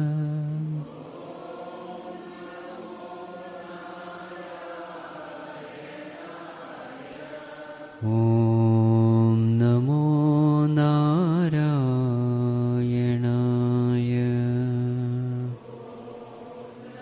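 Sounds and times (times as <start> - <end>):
person chanting a long note: 0.0 - 1.0, 8.0 - 15.6
group chanting in unison: 0.0 - 17.0.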